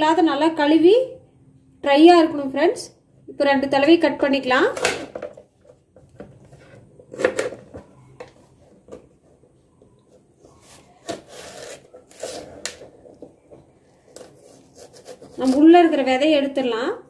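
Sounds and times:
knife scraping cutting board: 10.4 - 12.9, 14.0 - 15.9.

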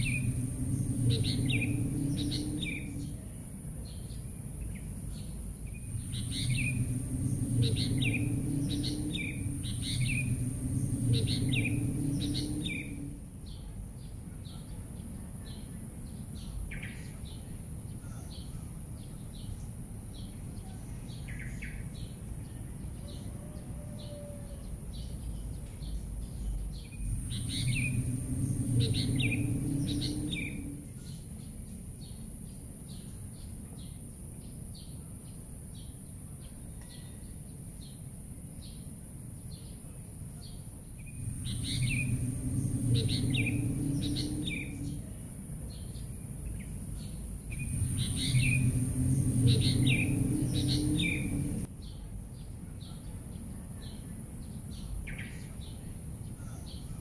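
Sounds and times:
low rumble: 0.0 - 14.2, 25.2 - 31.5, 40.6 - 51.8
birds chirping: 0.0 - 23.2, 24.0 - 32.3, 40.4 - 57.0.

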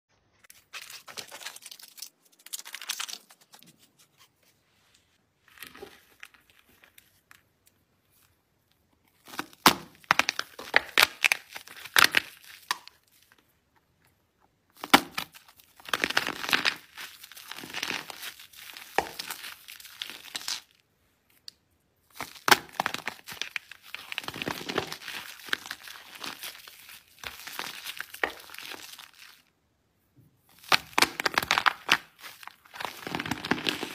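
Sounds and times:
soap crackling and crunching: 0.4 - 3.9, 9.0 - 13.5, 14.7 - 29.6, 30.5 - 33.9.

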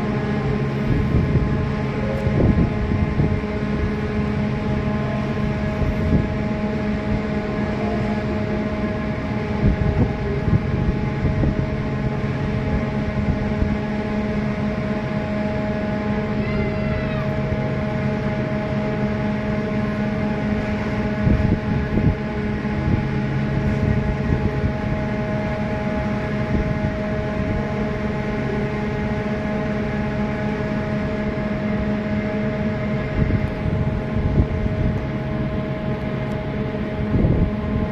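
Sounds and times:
wind gusts on microphone: 0.0 - 18.5, 19.3 - 28.5, 31.4 - 37.9
ship machinery hum: 0.0 - 37.9.

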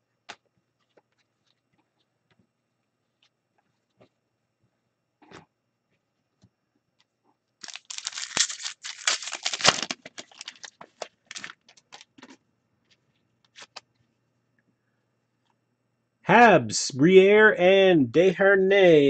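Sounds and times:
foil pack tearing and crinkling: 7.6 - 12.2.

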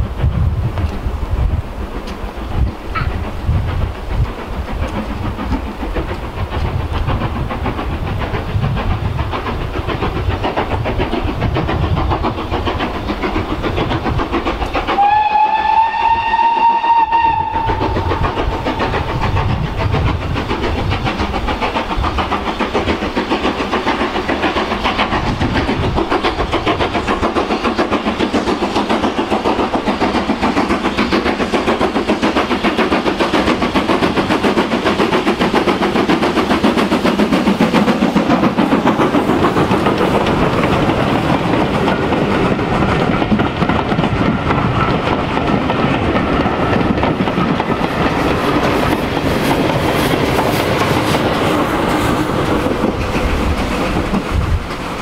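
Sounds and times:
steam locomotive chuffing: 0.0 - 55.0
steam whistle: 15.0 - 18.3.

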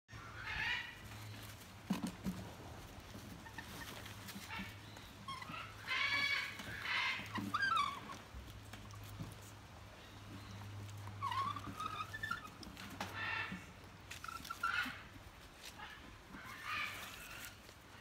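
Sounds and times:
lion cubs bleating: 4.4 - 8.3.

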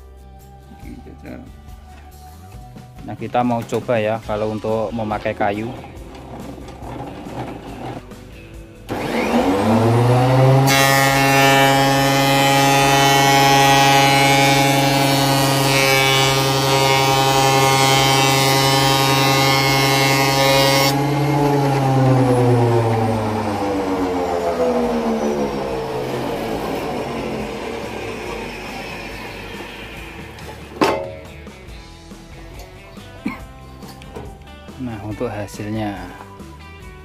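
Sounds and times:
planer cutting wood: 5.9 - 8.2, 8.9 - 31.2
planer motor whine: 8.9 - 30.8.

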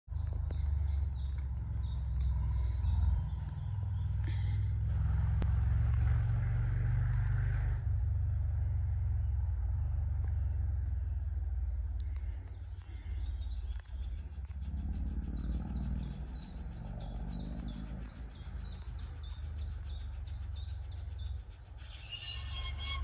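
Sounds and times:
steady low rumble: 0.1 - 23.0
songbird singing high notes: 15.0 - 23.0.

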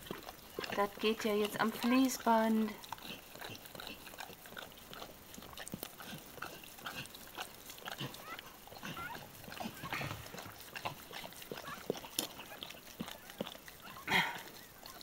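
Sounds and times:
dog licking puppy: 0.0 - 15.0
puppy squeaking: 8.0 - 10.4, 11.5 - 14.1.

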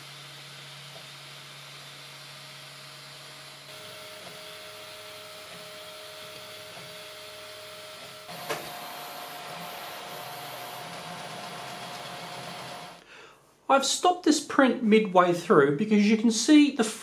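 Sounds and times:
printer motor tones: 0.0 - 13.0
cooling fan whir: 0.0 - 13.1.

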